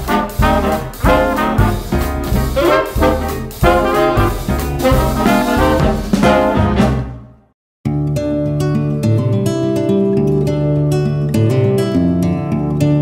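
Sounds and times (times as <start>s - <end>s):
upbeat swing music with brass: 0.0s - 7.5s.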